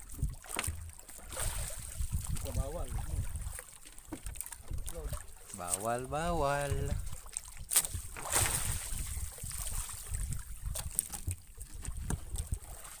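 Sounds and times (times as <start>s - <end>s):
floats and net knocking: 7.7s - 9.8s.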